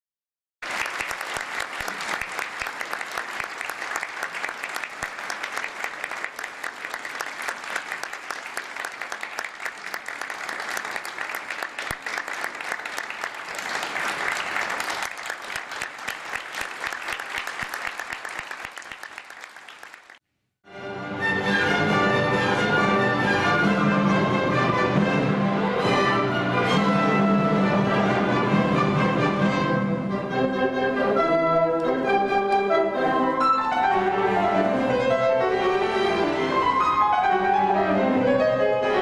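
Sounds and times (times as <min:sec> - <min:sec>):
audience applauding: 0:00.6 - 0:20.2.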